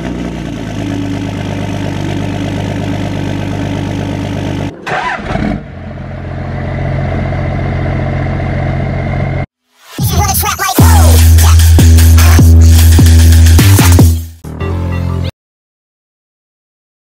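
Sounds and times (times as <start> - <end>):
higher-pitched diesel pickup idling: 0.0 - 5.2
diesel engine idling: 0.0 - 9.5.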